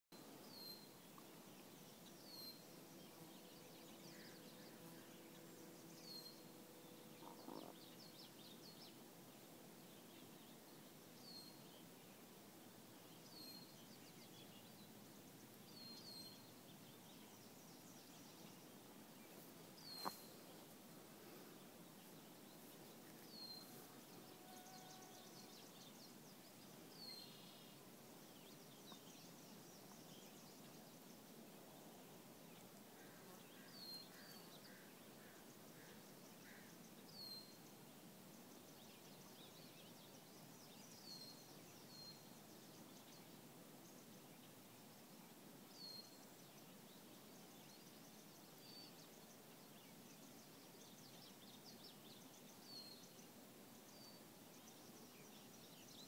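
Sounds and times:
low steady hiss: 0.1 - 56.0
bird chirping: 0.2 - 9.0, 15.6 - 20.7.

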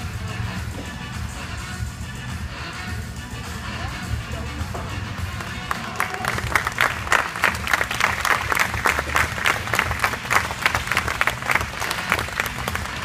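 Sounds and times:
quiet music: 0.0 - 13.0
audience clapping: 5.2 - 13.0.

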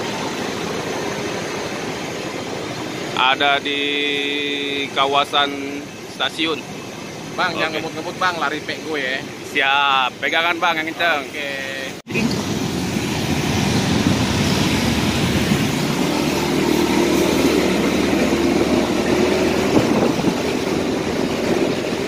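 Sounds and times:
motorcycle engine hum: 0.0 - 10.2, 12.1 - 22.0
wind rushing over microphone: 12.1 - 22.0.

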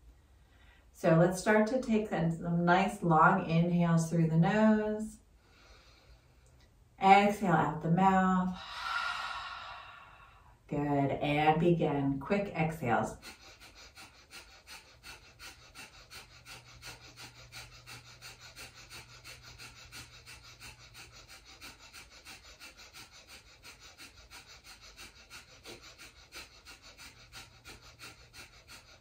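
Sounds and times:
forceful breaths through nose: 5.3 - 6.6, 13.1 - 29.0.

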